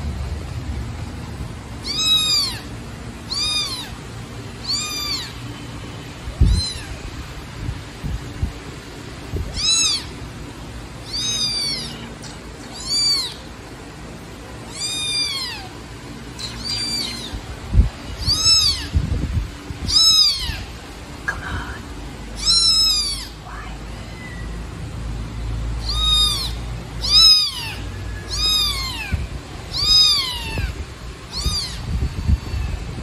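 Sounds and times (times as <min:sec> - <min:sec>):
kitten meowing: 0:01.8 - 0:02.7, 0:03.3 - 0:04.0, 0:04.6 - 0:05.4, 0:06.4 - 0:07.1, 0:09.4 - 0:10.2, 0:11.0 - 0:13.5, 0:14.7 - 0:15.7, 0:16.4 - 0:17.5, 0:18.1 - 0:19.0, 0:19.8 - 0:20.7, 0:22.4 - 0:24.4, 0:25.8 - 0:32.8.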